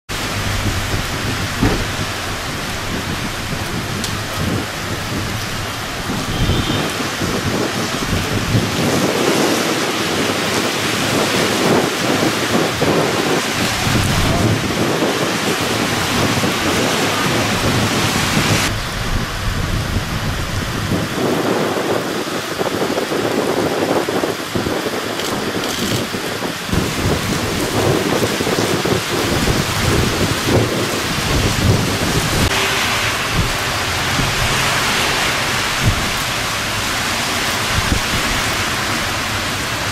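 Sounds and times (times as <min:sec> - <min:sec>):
heavy rain on pavement: 0:00.0 - 0:39.9.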